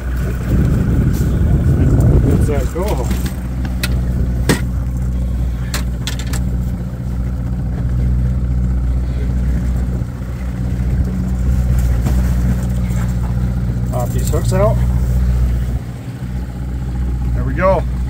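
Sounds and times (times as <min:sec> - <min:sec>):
outboard motor humming: 0:00.0 - 0:18.0.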